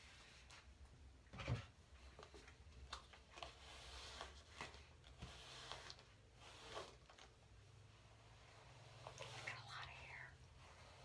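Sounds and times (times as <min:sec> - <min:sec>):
hairbrush through hair: 0:03.4 - 0:07.3, 0:08.4 - 0:10.0.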